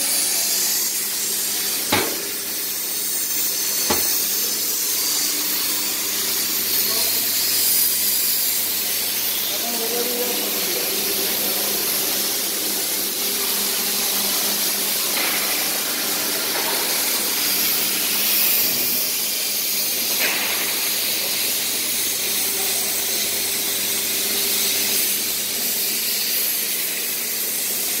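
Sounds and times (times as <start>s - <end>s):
machine hiss: 0.0s - 28.0s.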